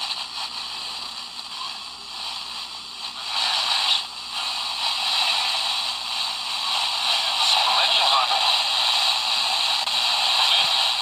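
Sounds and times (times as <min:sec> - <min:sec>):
radio static hissing: 0:00.0 - 0:11.0.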